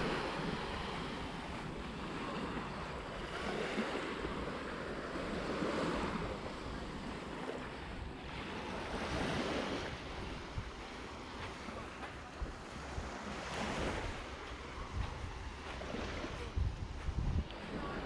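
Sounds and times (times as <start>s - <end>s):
small sea waves washing ashore: 0.0s - 18.0s
wind buffeting microphone: 0.0s - 18.0s.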